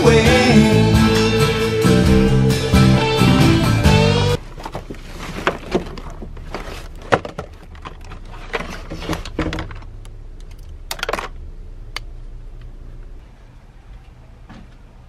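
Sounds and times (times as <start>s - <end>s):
plastic items clacking and rustling: 4.4s - 9.9s.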